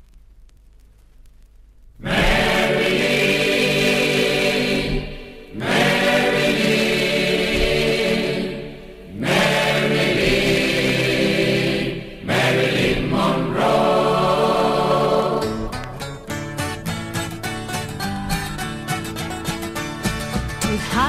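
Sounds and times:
choir singing held chords: 2.0 - 16.4.

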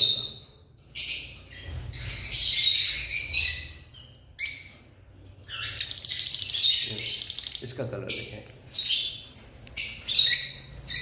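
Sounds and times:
lovebirds chirping: 0.0 - 11.0.

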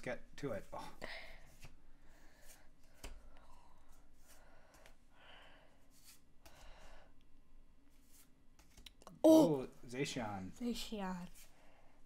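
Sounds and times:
trading cards sliding in hand: 5.9 - 6.2.

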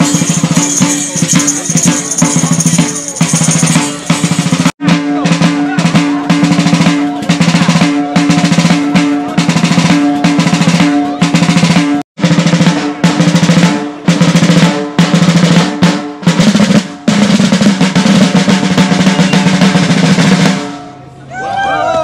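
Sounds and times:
marching drums playing: 0.0 - 21.0
voices: 0.1 - 4.3, 4.9 - 11.8.

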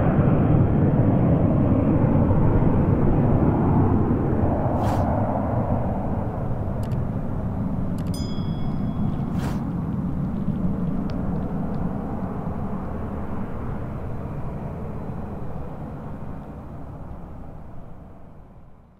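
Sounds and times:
distant jet rumble: 0.0 - 18.8
high ringing tone: 8.0 - 9.8.

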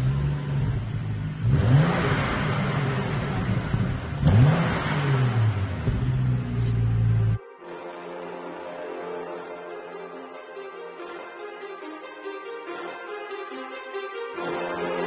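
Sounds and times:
car engine revving and idling: 0.0 - 7.4.

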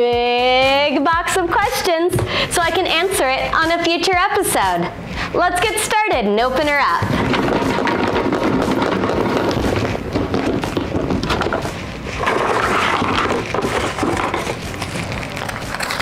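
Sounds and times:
paper rattling in plastic box: 12.2 - 16.0.

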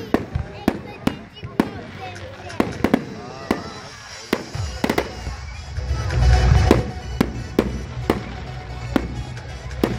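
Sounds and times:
fireworks bangs: 0.0 - 9.9.

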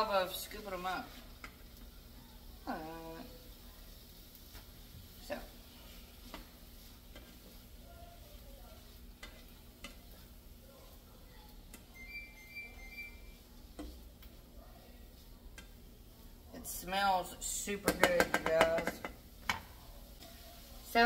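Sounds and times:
sausage frying in a skillet: 0.0 - 21.0
spatula scraping and tapping: 1.4 - 1.9, 5.9 - 7.8, 8.7 - 10.4, 13.7 - 14.4, 15.2 - 15.8, 17.8 - 20.4.

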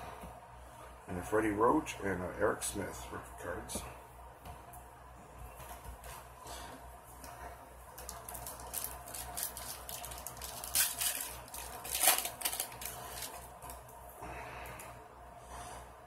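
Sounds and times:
plastic wrapper crinkling: 7.9 - 13.8
plastic wrapper ripping: 8.0 - 13.8.

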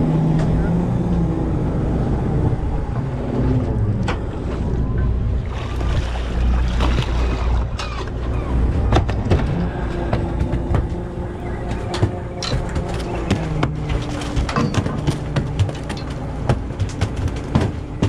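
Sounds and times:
boat engine low rumble: 0.0 - 18.0
knocks and clatter on deck: 11.8 - 18.0.

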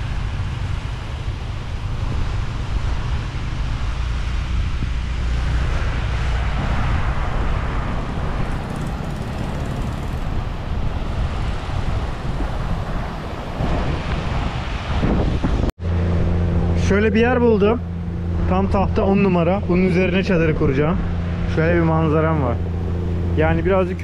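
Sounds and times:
wind buffeting microphone: 0.0 - 16.8.

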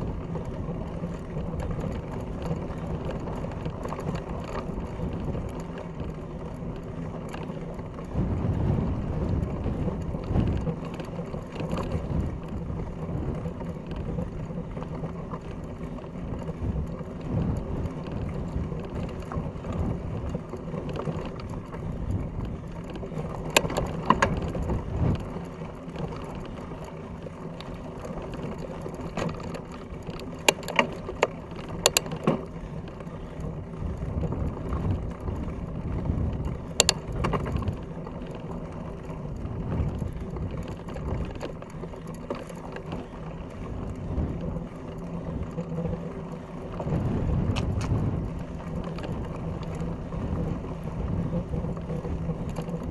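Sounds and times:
bike tyres rumbling on dirt: 0.0 - 52.9
sharp clicks and rattles: 0.0 - 52.9
wind: 0.0 - 52.9.

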